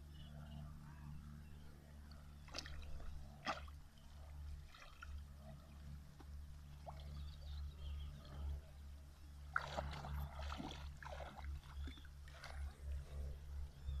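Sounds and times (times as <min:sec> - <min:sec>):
dog splashing in water: 0:09.5 - 0:11.5.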